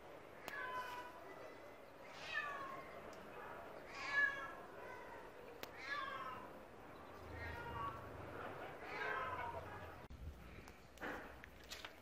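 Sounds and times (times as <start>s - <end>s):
cat meowing: 2.0s - 2.9s, 3.9s - 6.6s, 7.2s - 8.1s, 8.8s - 9.7s.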